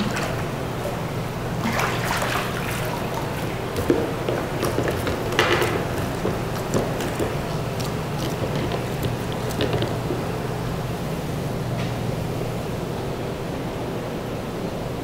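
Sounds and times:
fish splashing at water surface: 0.0 - 10.7
steady low hum: 0.0 - 15.0.

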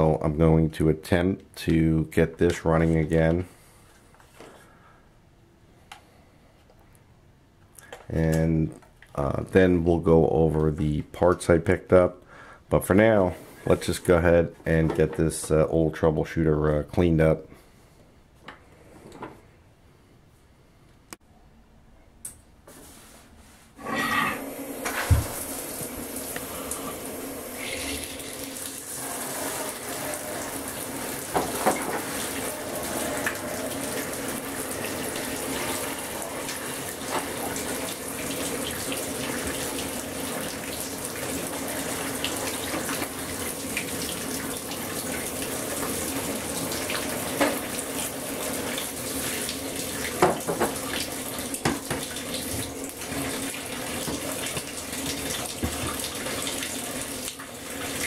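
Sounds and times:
tap water running into basin: 24.7 - 58.0.

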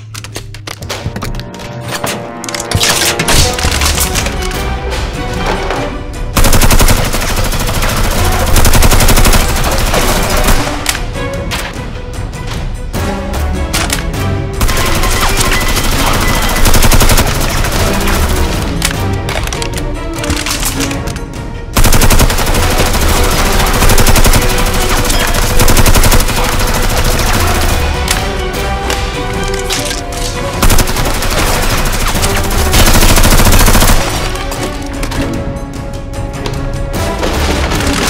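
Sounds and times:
background music: 0.0 - 38.0
automatic gunfire: 6.4 - 10.8, 14.6 - 18.3, 21.8 - 27.8, 30.6 - 34.4.

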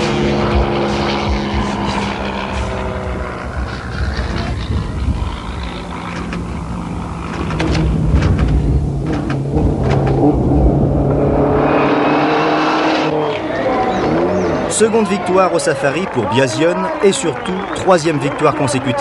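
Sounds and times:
rally car engine running hard: 0.0 - 19.0.

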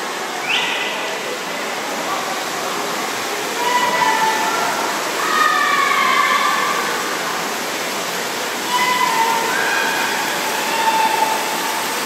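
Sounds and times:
crowd noise: 0.0 - 12.0
water churned by swimmers: 0.0 - 12.0
spectators shouting encouragement: 8.6 - 12.0.

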